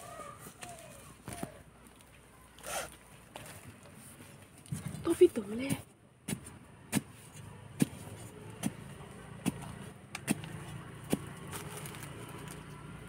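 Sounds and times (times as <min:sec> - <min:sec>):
digging tool chopping soil: 0:05.6 - 0:12.0
low engine hum: 0:06.2 - 0:13.0.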